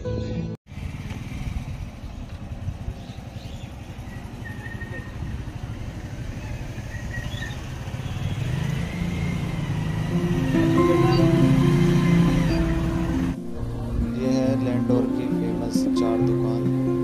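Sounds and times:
low rumble: 0:12.7 - 0:14.9.

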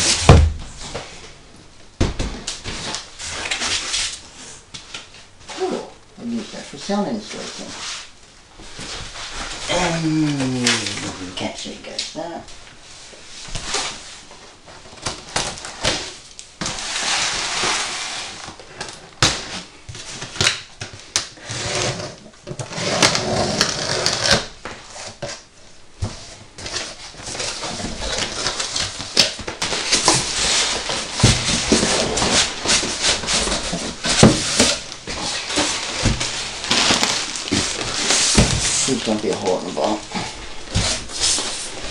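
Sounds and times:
blade slitting packing tape: 0:20.2 - 0:24.5, 0:35.6 - 0:38.8
plastic wrapping crinkling: 0:26.2 - 0:41.9
cardboard flaps pulled back: 0:27.5 - 0:39.1.

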